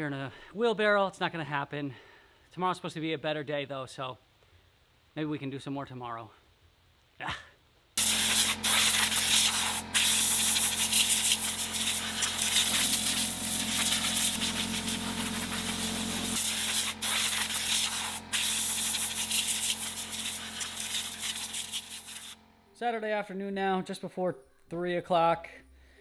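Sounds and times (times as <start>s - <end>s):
low hum: 8.0s - 21.6s
air blow gun hissing: 8.0s - 22.4s.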